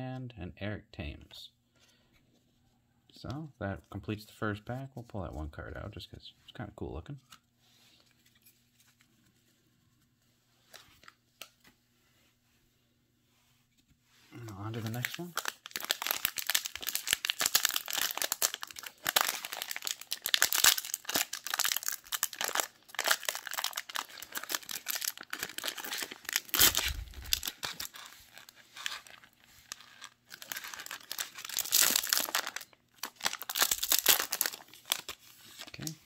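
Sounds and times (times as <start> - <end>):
plastic wrapper crinkling and tearing: 14.4 - 36.0.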